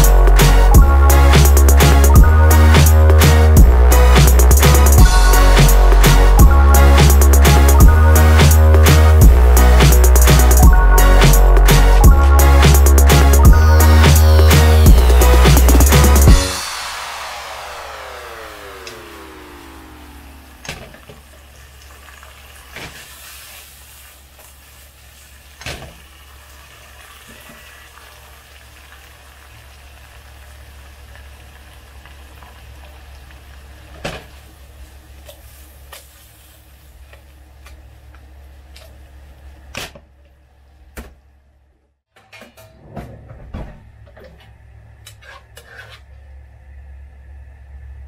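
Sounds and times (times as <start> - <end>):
sauce simmering and sizzling in wok: 16.4 - 39.5.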